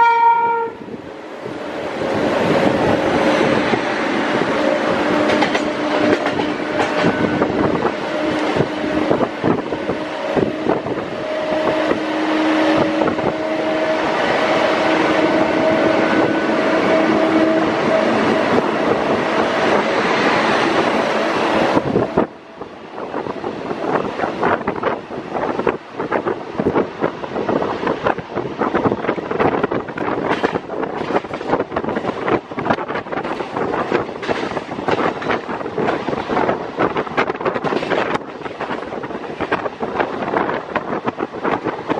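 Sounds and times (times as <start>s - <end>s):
train wheels clattering over rail joints: 1.7s - 12.1s, 23.4s - 41.9s.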